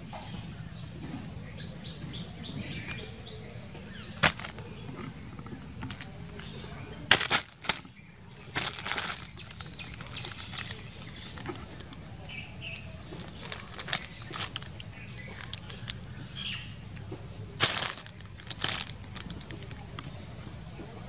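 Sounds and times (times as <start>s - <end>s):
plastic sheeting rustling: 7.1s - 12.0s, 13.0s - 14.8s, 17.6s - 20.0s.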